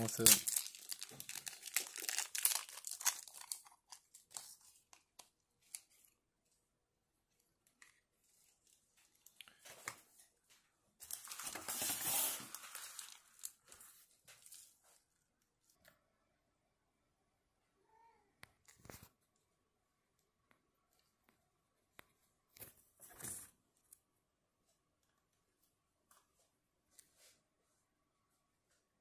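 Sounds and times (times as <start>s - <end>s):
plastic bags crinkling: 0.0s - 6.1s, 11.0s - 14.8s.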